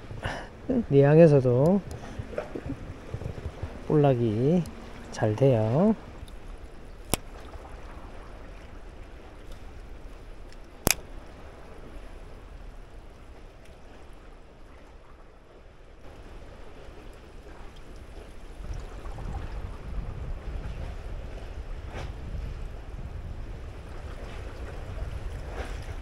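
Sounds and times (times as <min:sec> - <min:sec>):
wind on microphone: 0:00.0 - 0:09.8, 0:18.0 - 0:26.0
water lapping against concrete: 0:01.3 - 0:12.4
sharp clicks: 0:10.5 - 0:11.1.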